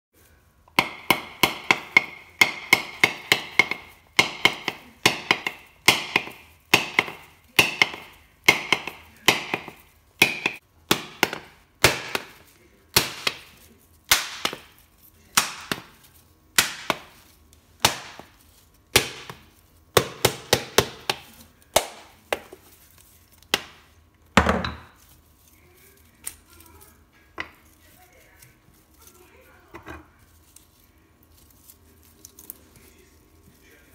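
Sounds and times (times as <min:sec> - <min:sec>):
hammer knocking on coconut: 0:00.8 - 0:13.5, 0:15.4 - 0:16.0, 0:16.6 - 0:17.2, 0:17.8 - 0:22.6.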